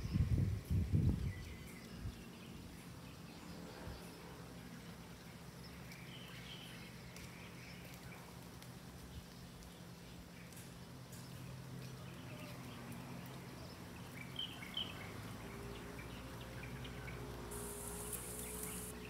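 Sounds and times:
high hiss: 17.4s - 19.0s
steady low hum: 17.5s - 19.0s.

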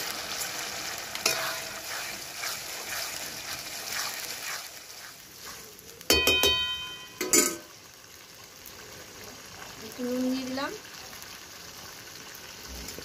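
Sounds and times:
metal spatula scraping in wok: 1.1s - 7.7s
steel utensils clanging together: 1.2s - 1.7s, 6.1s - 7.7s.

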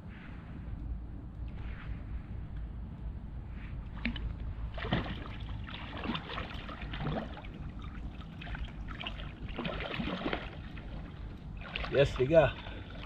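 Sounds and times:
steady low rumble: 0.0s - 13.0s
water splashing and sloshing: 3.6s - 13.0s.

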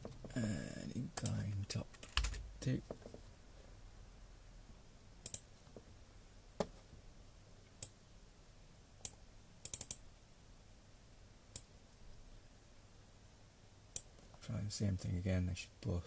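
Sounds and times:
computer mouse clicks: 5.2s - 5.5s, 9.0s - 10.0s.

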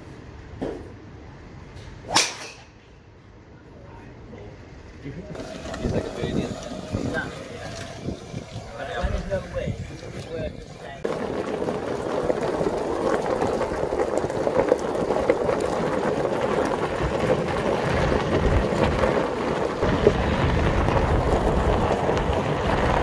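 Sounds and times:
wheel rolling over gravel: 5.4s - 23.0s.

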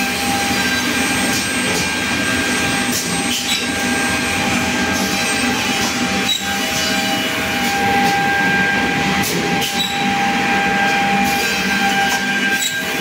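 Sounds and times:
constant whining tones: 0.0s - 13.0s.

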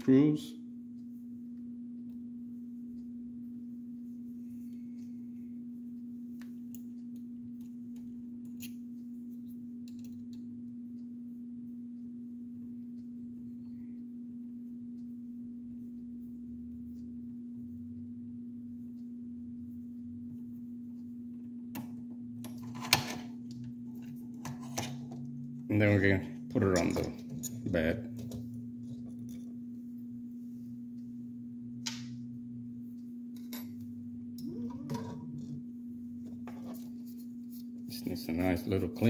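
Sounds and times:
steady low hum: 0.0s - 39.0s
hex key clicking and scraping metal: 8.4s - 8.8s.

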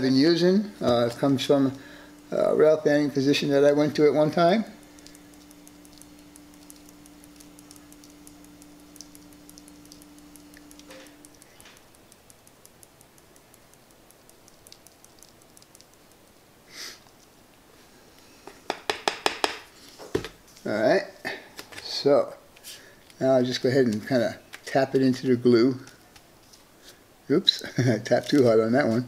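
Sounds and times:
low steady hum: 0.0s - 19.0s
dirt grains ticking: 0.8s - 16.5s.

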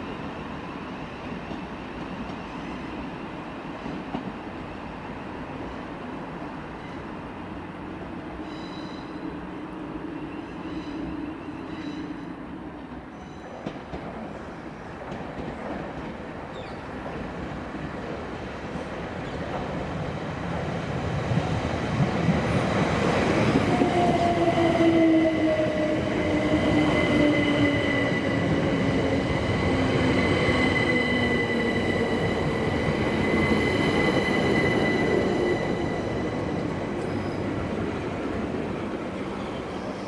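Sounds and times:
high squeal: 37.0s - 37.6s.

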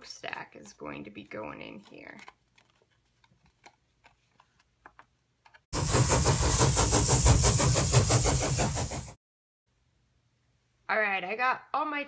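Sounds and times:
rough rattling sound effect: 5.8s - 9.2s.

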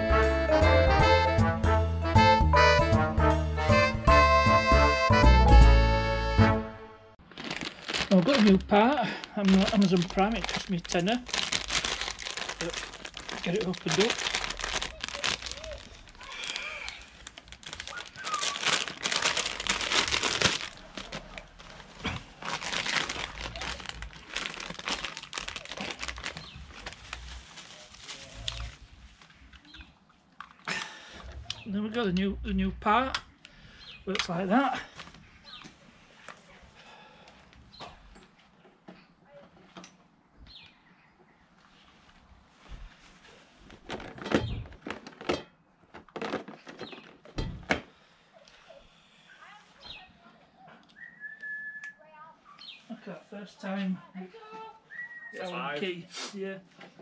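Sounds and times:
plastic packaging crinkling: 7.2s - 29.7s, 43.4s - 47.3s.

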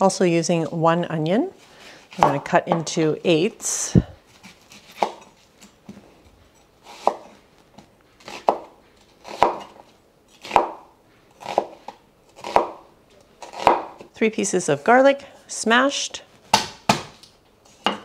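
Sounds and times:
knife cutting onion: 6.8s - 7.4s, 8.2s - 12.8s, 13.4s - 14.1s.

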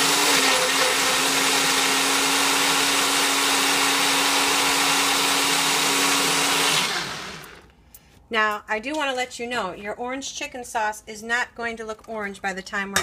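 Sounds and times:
blender blades whirring: 0.0s - 7.7s
blender motor whine: 0.0s - 7.7s.

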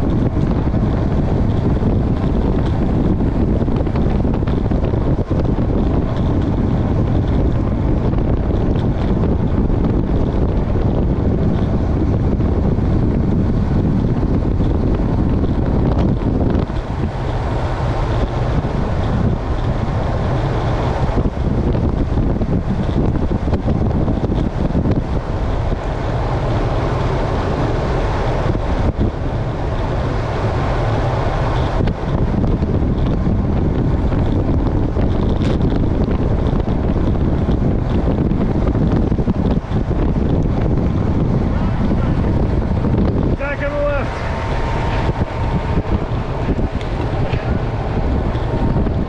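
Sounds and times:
wind rushing over microphone: 0.0s - 49.0s.

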